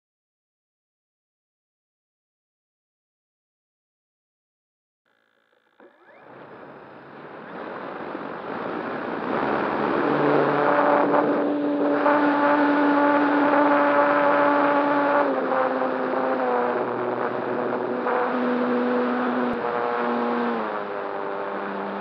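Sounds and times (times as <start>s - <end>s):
electric motor and propeller drone: 5.1s - 12.0s, 12.8s - 22.0s
airflow rushing: 6.3s - 12.0s.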